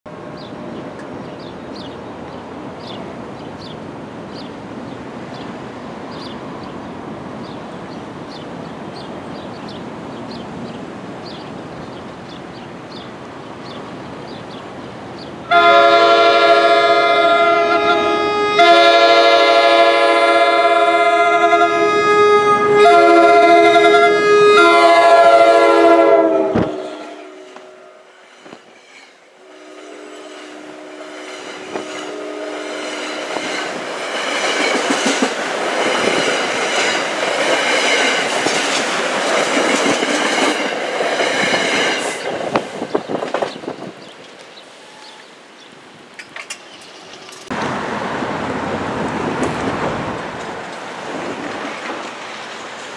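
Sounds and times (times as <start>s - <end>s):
train horn blasts: 15.5s - 28.1s, 29.4s - 33.5s.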